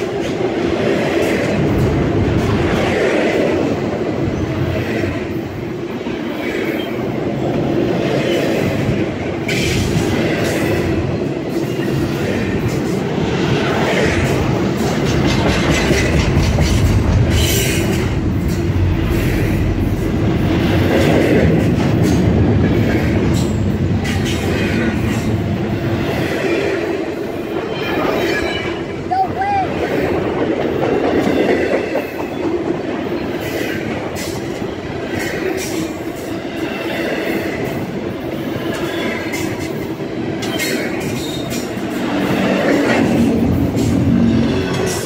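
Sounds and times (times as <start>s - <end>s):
freight train wheels rumbling: 0.0s - 45.0s
wheels clacking over rail joints: 8.0s - 28.6s, 29.8s - 45.0s.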